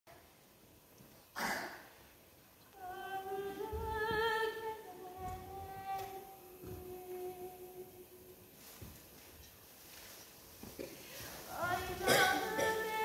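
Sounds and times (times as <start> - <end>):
woman singing wordless tune: 2.7 - 8.5, 11.3 - 13.0.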